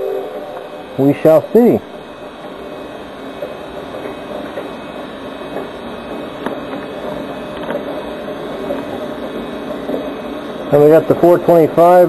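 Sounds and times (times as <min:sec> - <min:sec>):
recorded railroad sounds: 0:00.0 - 0:12.0.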